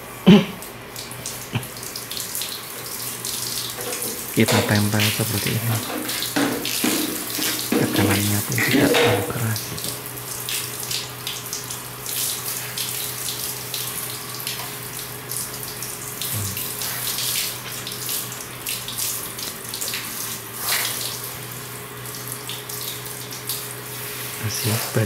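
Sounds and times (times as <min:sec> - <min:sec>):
water splashing on tiled floor: 0:00.6 - 0:24.3
shower spray hissing through fur: 0:03.6 - 0:10.0, 0:12.1 - 0:13.4, 0:16.2 - 0:18.3, 0:19.8 - 0:21.3, 0:23.6 - 0:25.0.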